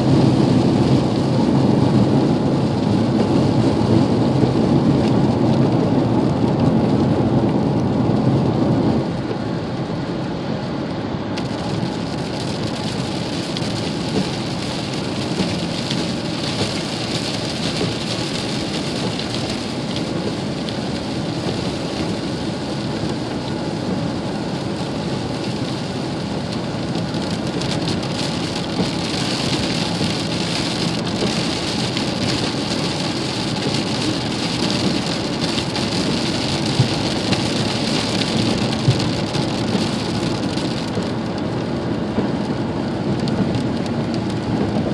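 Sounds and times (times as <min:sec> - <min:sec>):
heavy rain on a vehicle roof: 0:00.0 - 0:44.9
tyres hissing on wet road: 0:00.0 - 0:44.9.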